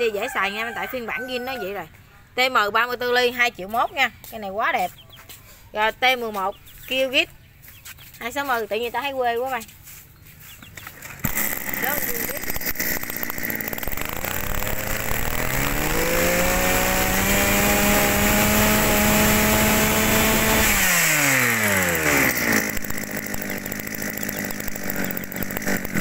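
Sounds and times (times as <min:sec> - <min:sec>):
brush cutter engine revving: 0:10.5 - 0:26.0.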